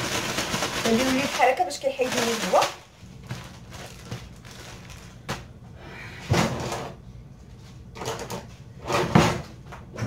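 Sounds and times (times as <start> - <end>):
plastic bag being handled: 0.0 - 5.4.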